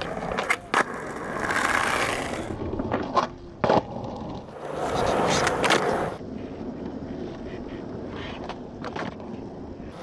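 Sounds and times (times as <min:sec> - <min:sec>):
skateboard clacks: 0:00.0 - 0:06.2
skateboard rolling: 0:00.0 - 0:10.0.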